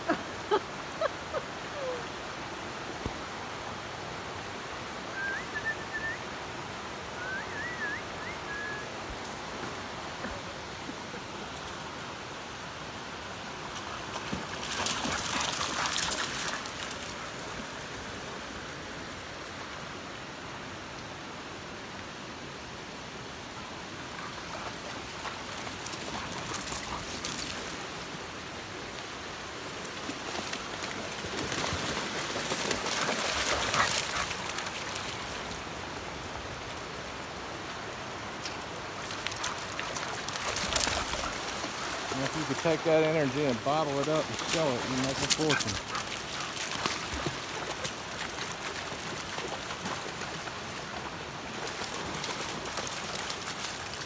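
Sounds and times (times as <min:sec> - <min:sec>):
creek water rushing: 0:00.0 - 0:54.0
dogs splashing in water: 0:13.8 - 0:17.2, 0:30.1 - 0:35.2, 0:39.3 - 0:50.4.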